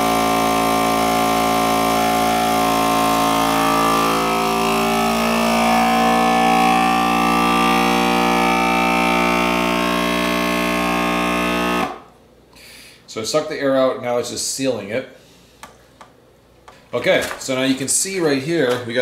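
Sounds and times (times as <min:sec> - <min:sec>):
vacuum sealer pump motor: 0:00.0 - 0:12.1.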